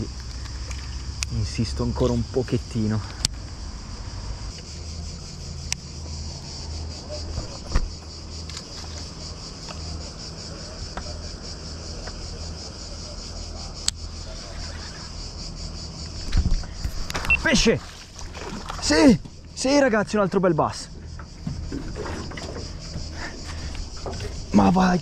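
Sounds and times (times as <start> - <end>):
insects buzzing: 0.0 - 25.0.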